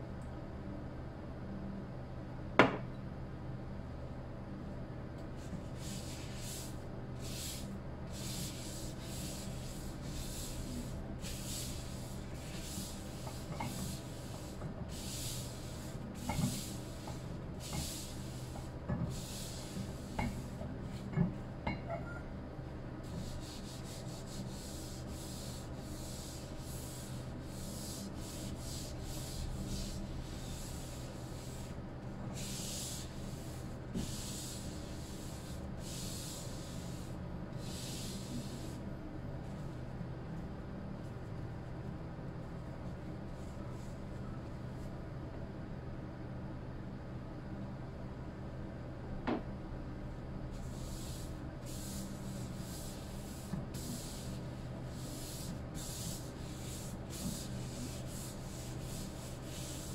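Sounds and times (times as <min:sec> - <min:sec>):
paper towel rubbing a cutting board: 0:05.4 - 0:21.2, 0:23.0 - 0:38.8, 0:50.6 - 0:59.9.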